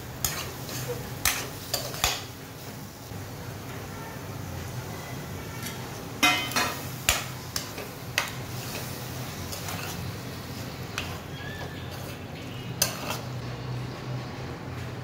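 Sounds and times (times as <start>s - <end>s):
spoon clinking against metal pan: 5.6s - 9.9s.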